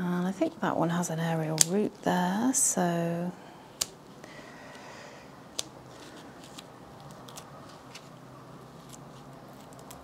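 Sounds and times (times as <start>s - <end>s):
scissors snipping stem: 1.6s - 1.8s, 3.8s - 4.0s.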